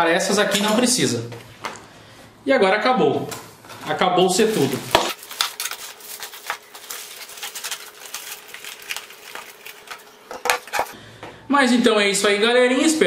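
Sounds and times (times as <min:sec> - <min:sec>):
plastic bag rustling: 0:03.8 - 0:11.0.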